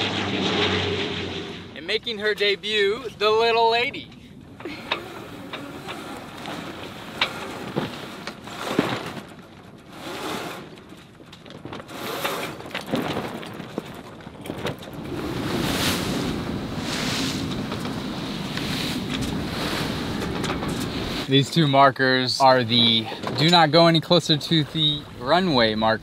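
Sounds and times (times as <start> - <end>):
wind: 0.0 - 26.0
sail clicking and rustling: 0.1 - 26.0
water rushing: 15.0 - 26.0.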